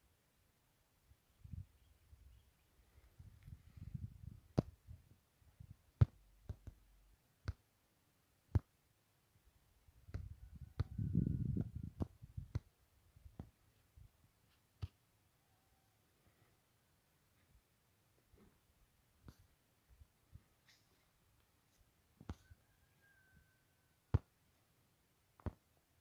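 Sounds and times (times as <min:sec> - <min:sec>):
wind buffeting microphone: 0:03.2 - 0:05.8, 0:10.0 - 0:12.6.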